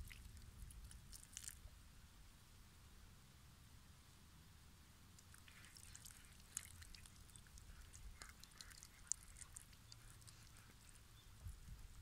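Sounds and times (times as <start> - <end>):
splashing and dripping: 0.0 - 1.6, 5.2 - 12.0
water trickling: 0.0 - 1.6, 5.2 - 12.0.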